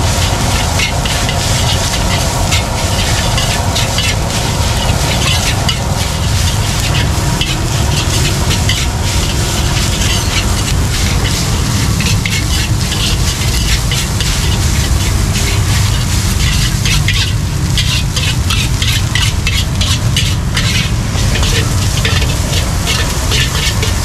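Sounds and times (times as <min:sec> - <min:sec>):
steady sizzle: 0:00.0 - 0:24.0
metal ladle clacking on a wok: 0:16.5 - 0:24.0.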